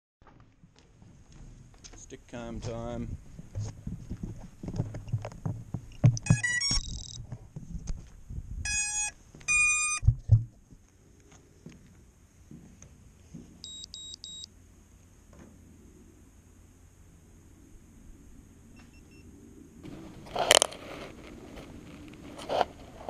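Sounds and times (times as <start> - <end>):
electronic startup beeps: 6.2 - 7.2, 8.7 - 10.0, 13.6 - 14.5
faint high whine: 10.9 - 23.0.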